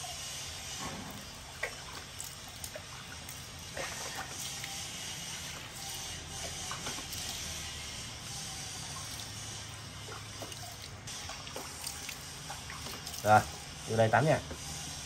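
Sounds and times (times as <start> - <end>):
small splashes: 1.1 - 7.7, 8.8 - 13.6
water trickling: 1.1 - 13.8.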